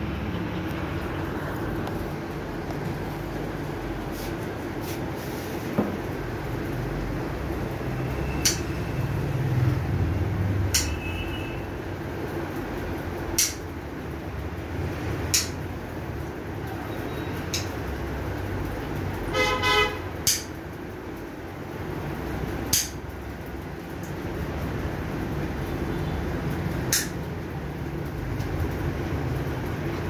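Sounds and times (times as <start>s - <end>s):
nail clipper clicks: 20.2s - 20.5s.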